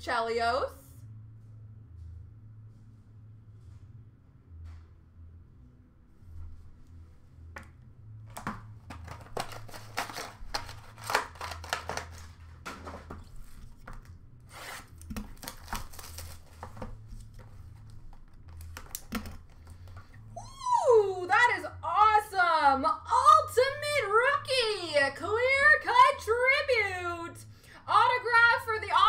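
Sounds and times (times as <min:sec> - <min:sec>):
steady low hum: 0:00.0 - 0:29.0
cardboard packaging tearing: 0:08.9 - 0:19.4.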